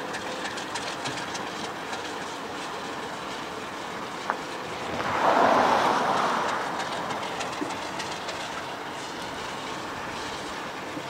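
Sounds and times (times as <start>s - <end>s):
diesel locomotive rail noise: 3.9s - 11.0s
rushing noise: 4.6s - 10.2s.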